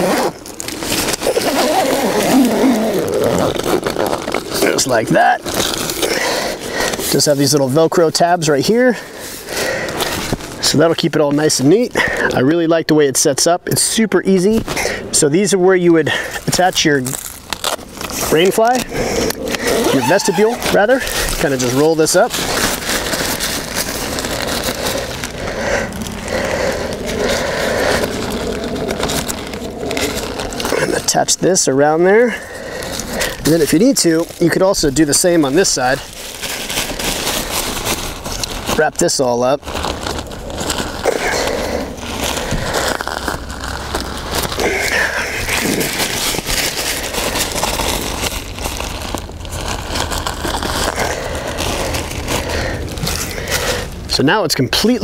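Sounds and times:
nylon fabric rustling: 0.0 - 8.5, 16.4 - 54.2
steady low rumble: 15.0 - 38.8.

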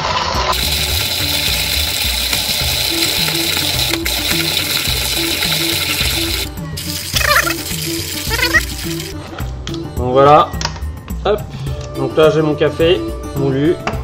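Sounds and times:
hand coffee grinder crushing beans: 0.5 - 9.2
background music with beat: 0.5 - 14.0.

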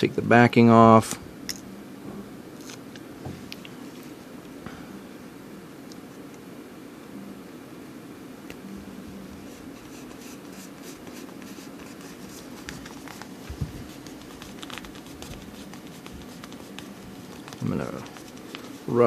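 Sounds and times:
fingers rustling nylon jacket: 9.4 - 19.0.

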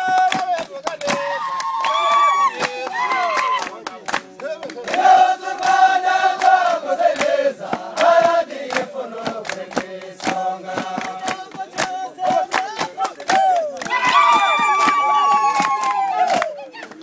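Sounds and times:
hands clapping a beat: 0.0 - 17.0
soldiers singing in unison: 4.8 - 13.2.

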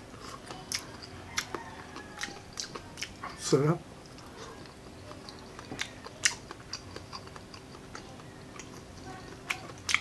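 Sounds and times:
close chewing of food: 0.0 - 10.0.

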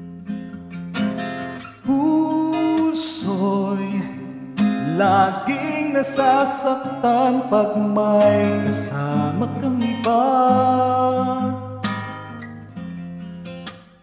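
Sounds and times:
strummed acoustic guitar: 0.0 - 14.0
man singing a love ballad: 1.8 - 12.1.

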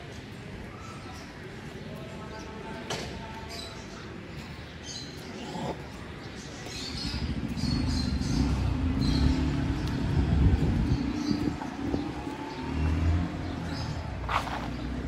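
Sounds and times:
vehicle engine passing by: 6.9 - 15.0.

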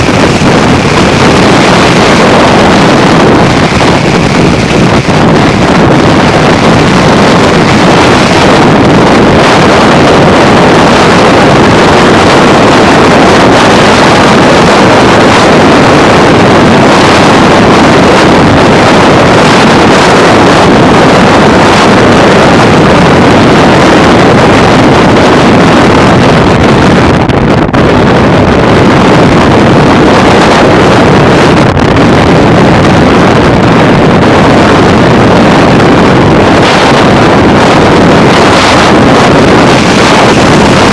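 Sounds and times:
road noise: 0.0 - 40.9
wind rush on microphone: 0.0 - 40.9.

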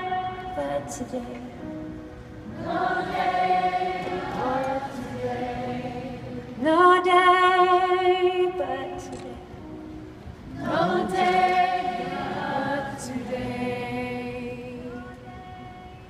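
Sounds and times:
voices singing in unison: 2.5 - 7.0, 10.5 - 15.3.

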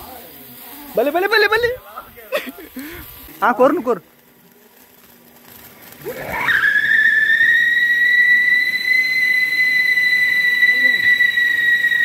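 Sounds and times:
firework whistling: 0.0 - 12.0
hiss of sparks: 0.0 - 12.0.

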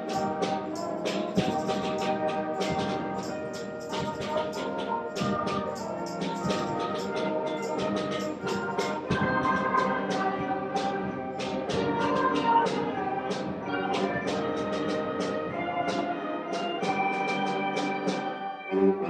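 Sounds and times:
struck percussion notes: 0.0 - 18.4
concert band playing: 0.0 - 19.0
wind instruments holding chords: 0.0 - 19.0.

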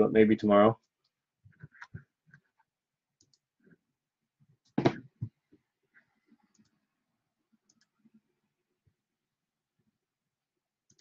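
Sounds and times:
knock on tabletop: 4.8 - 5.0.

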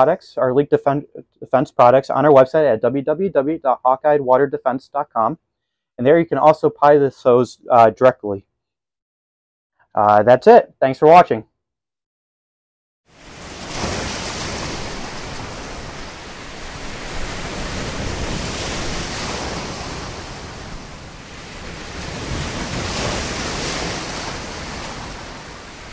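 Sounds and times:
rushing surf-like noise: 13.2 - 25.9.

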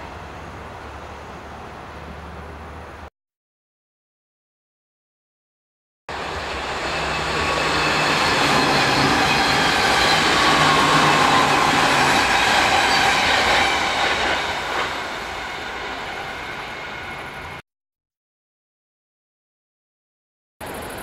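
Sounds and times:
train wheels rumbling on rails: 6.1 - 17.6.

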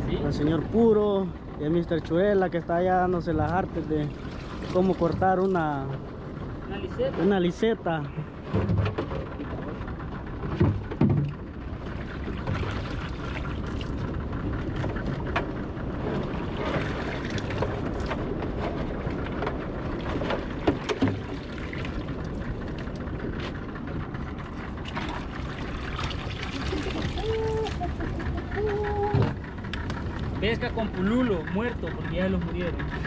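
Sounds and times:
sea waves: 0.0 - 33.0
wind: 0.0 - 33.0
knocks in boat: 8.4 - 11.5, 14.6 - 22.0, 29.0 - 30.0
small splashes: 24.8 - 27.9.

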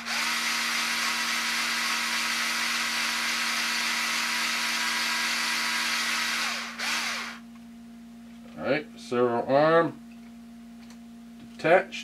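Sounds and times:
cordless drill running: 0.0 - 7.4.

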